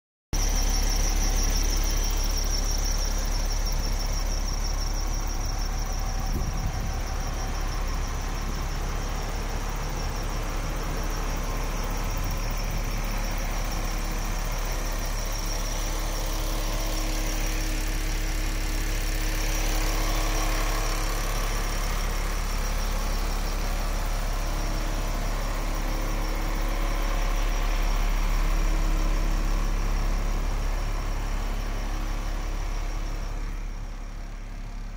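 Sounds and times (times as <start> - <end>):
diesel truck engine idling: 0.4 - 34.9.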